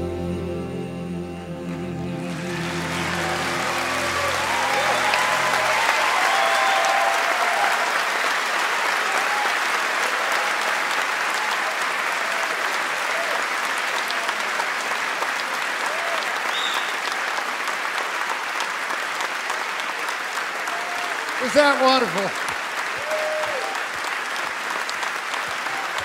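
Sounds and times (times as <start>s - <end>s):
sustained music notes: 0.0s - 6.6s
audience applauding: 1.7s - 26.0s
shouts and whoops: 2.9s - 8.2s, 22.9s - 24.0s.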